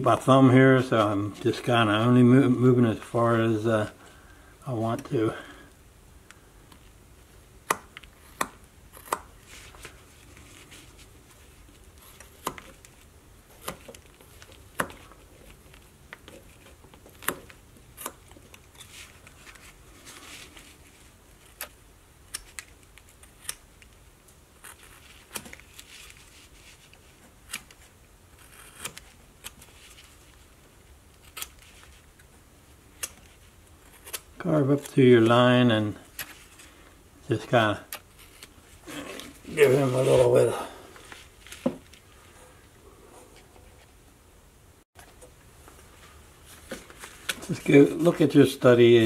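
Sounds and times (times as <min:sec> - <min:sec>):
knife carving wood clicks: 0:07.6 - 0:09.3, 0:12.2 - 0:12.9, 0:16.1 - 0:18.7, 0:21.5 - 0:24.0, 0:33.0 - 0:33.3
knife scraping wood: 0:28.3 - 0:29.1.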